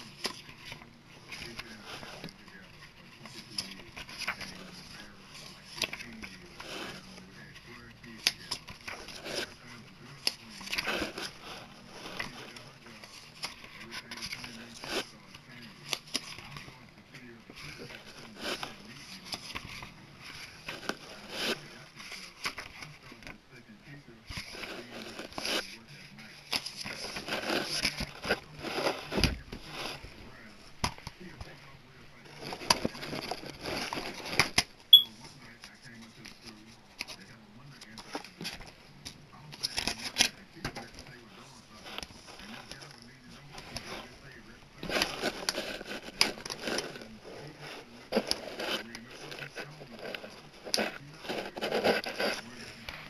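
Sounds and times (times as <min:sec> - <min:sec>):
plastic case scraping and rubbing: 0:00.0 - 0:16.8, 0:17.5 - 0:23.4, 0:24.2 - 0:31.6, 0:32.2 - 0:34.7, 0:35.6 - 0:53.0
hands rustling cardboard sleeves: 0:00.0 - 0:53.0.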